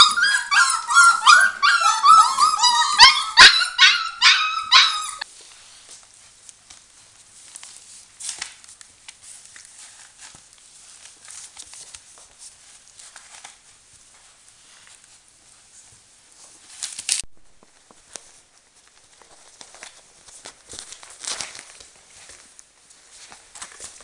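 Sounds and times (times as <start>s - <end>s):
puppies yipping and whining: 0.0s - 5.2s
faint rustles and clicks: 5.1s - 24.0s.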